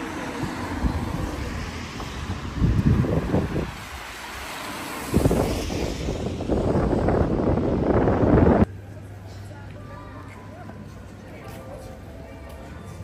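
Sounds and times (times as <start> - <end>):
wind buffeting microphone: 0.3 - 8.7.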